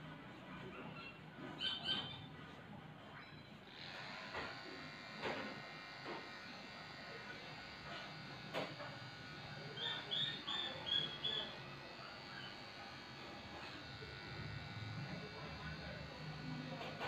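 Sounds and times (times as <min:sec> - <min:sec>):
electric clippers buzzing: 0:03.6 - 0:17.0
short high squeaks: 0:09.7 - 0:11.5.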